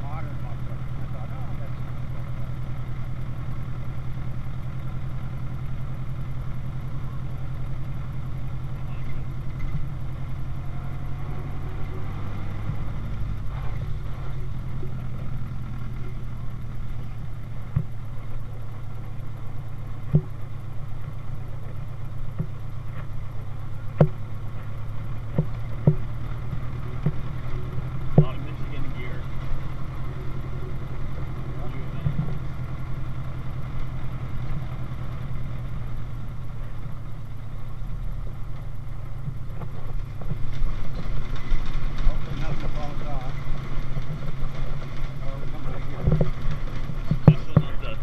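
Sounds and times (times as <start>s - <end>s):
car engine running: 0.0s - 48.0s
sharp knocks from car: 25.3s - 26.1s.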